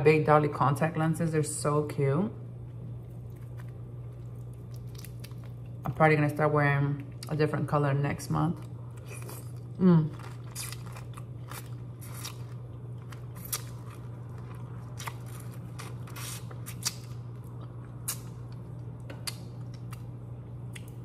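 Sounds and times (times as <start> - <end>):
low hum: 0.0 - 21.0
shrimp shells crunching: 9.0 - 17.1.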